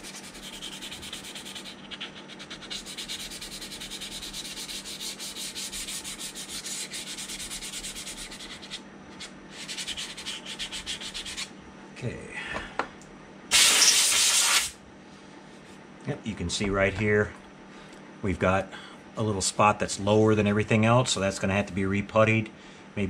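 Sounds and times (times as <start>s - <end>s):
sandpaper rubbing: 0.0s - 11.5s, 13.6s - 14.7s.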